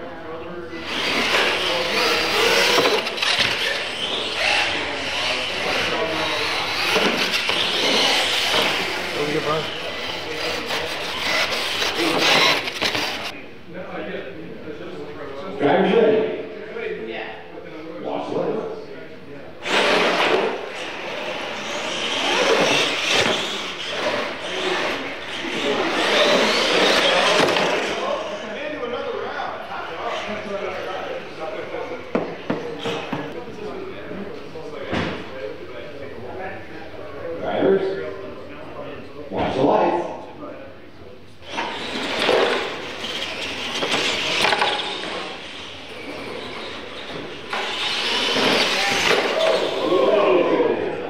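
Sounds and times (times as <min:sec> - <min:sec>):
toy truck motor whine: 0:00.8 - 0:13.3, 0:19.6 - 0:28.4, 0:41.4 - 0:50.0.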